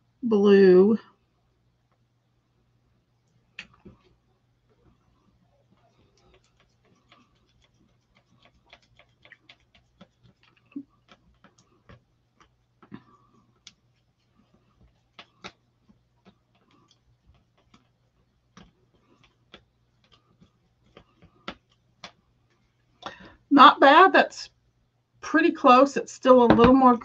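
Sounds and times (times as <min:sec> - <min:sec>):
spatula scraping ink: 0:06.2 - 0:12.6.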